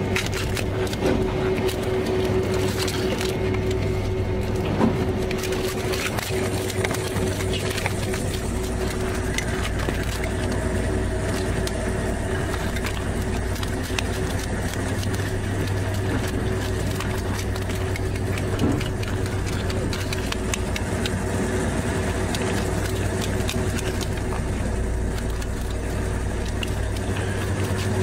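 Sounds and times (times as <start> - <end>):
boat engine running: 0.0 - 28.0.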